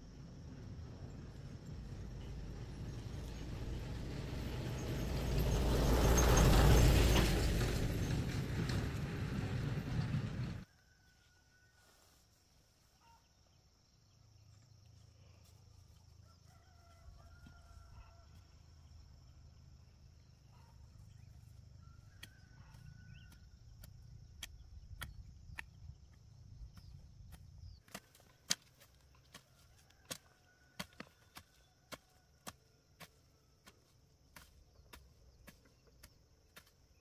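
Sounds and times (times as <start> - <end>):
low rumble: 0.0 - 10.6
distant rooster crowing: 10.6 - 12.2, 16.2 - 18.6, 21.5 - 24.2, 29.3 - 33.4.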